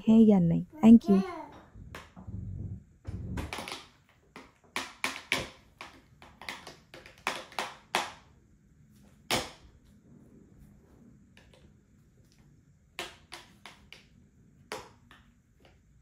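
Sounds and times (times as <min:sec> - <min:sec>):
plastic cups tapping on trays: 0:03.4 - 0:08.2.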